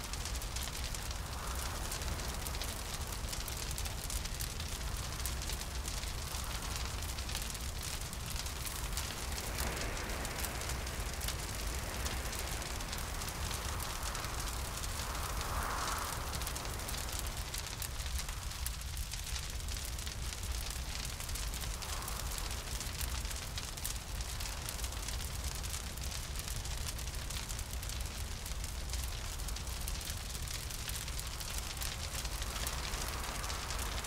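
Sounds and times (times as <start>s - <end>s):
hollow wind: 0.0s - 24.9s
fire crackling: 0.0s - 34.0s
low rumble: 6.2s - 23.4s.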